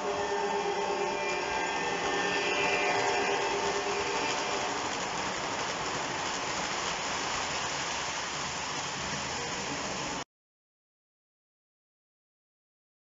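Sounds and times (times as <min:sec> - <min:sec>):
faint motor whine: 0:00.0 - 0:10.2
model train wheels rushing on rails: 0:00.0 - 0:10.2.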